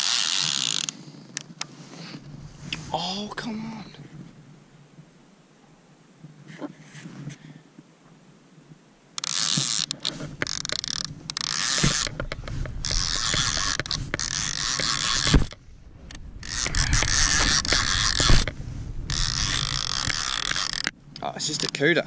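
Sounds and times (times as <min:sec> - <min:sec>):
fishing reel whirring and clicking: 0:00.0 - 0:01.6, 0:09.2 - 0:21.8.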